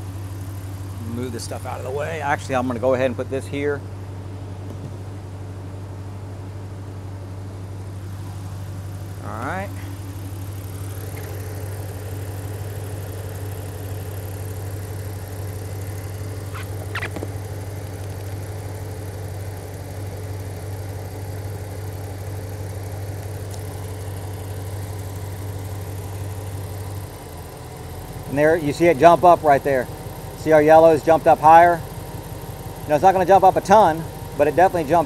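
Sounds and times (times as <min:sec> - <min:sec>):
pickup engine idling: 0:00.0 - 0:35.0.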